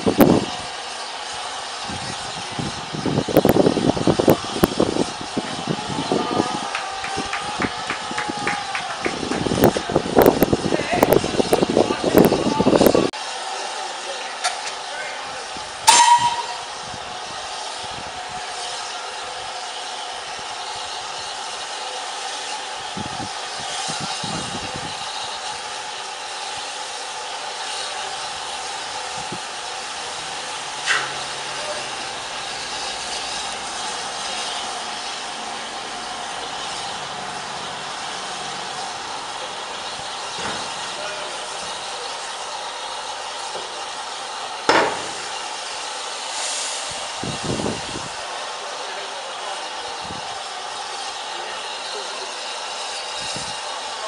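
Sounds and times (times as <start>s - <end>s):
steam hissing: 0.0s - 54.0s
loud metallic clank: 15.8s - 16.8s, 30.8s - 31.8s, 44.7s - 45.4s
sharp metallic knock: 15.9s - 16.7s, 44.7s - 45.1s.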